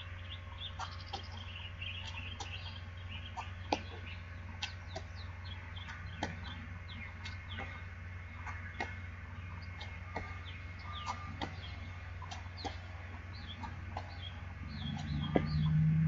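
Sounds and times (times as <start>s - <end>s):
birds chirping: 0.0s - 16.0s
steady low hum: 0.0s - 16.0s.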